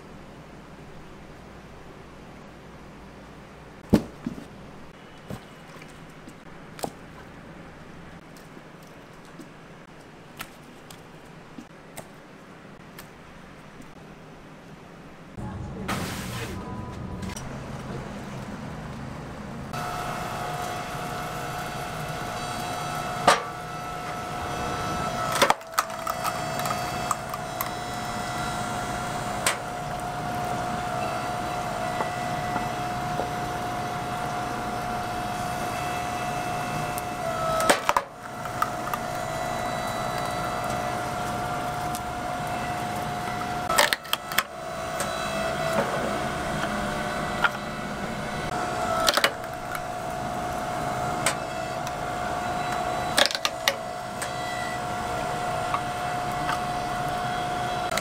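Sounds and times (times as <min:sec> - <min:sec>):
motor humming: 0:16.6 - 0:58.0
wood splintering cracks: 0:24.8 - 0:28.3, 0:37.4 - 0:39.2, 0:49.0 - 0:49.8, 0:53.2 - 0:53.8.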